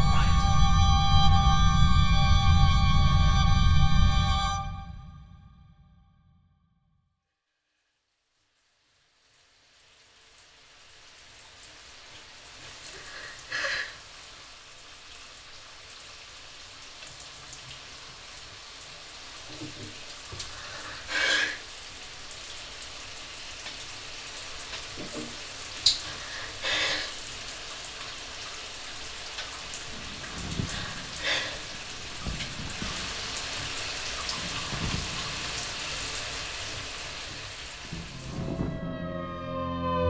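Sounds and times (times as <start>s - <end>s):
music with gliding tones: 0.0s - 5.3s, 37.9s - 40.0s
shower water spraying: 9.2s - 38.8s.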